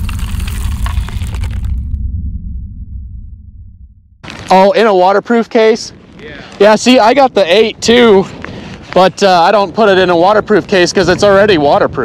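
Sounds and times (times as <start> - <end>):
crackling crumbling debris: 0.0 - 2.0, 4.2 - 11.3
deep rumbling boom: 0.0 - 4.3.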